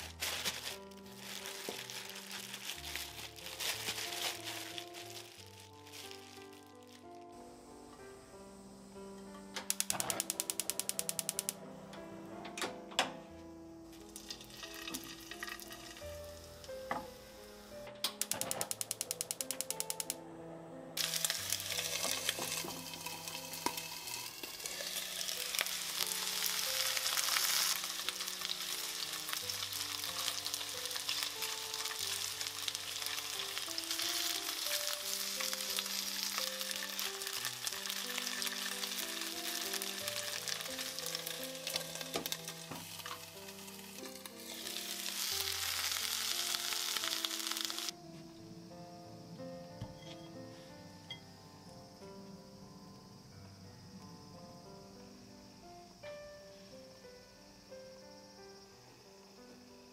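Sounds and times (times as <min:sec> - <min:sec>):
chicken sizzling in pan: 0:00.0 - 0:07.1, 0:21.0 - 0:47.9.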